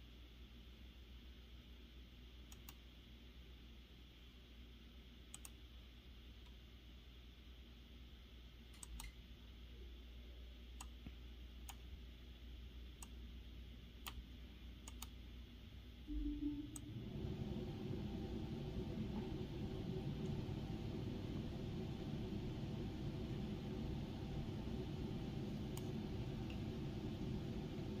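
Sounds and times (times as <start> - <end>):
low steady hum: 0.0 - 28.0
computer mouse clicks: 2.5 - 2.8, 5.3 - 5.6, 8.7 - 9.2, 10.8 - 11.9, 13.0 - 13.2, 14.8 - 15.2, 25.7 - 25.9
brief low sound: 16.1 - 19.4.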